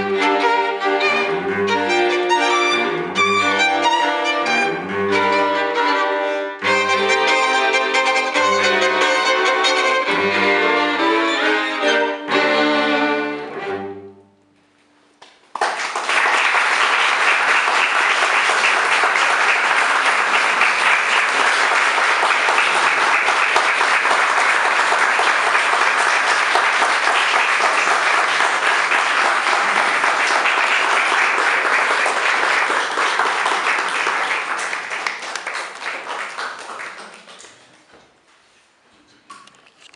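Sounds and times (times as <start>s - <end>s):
audience clapping: 15.2s - 37.9s.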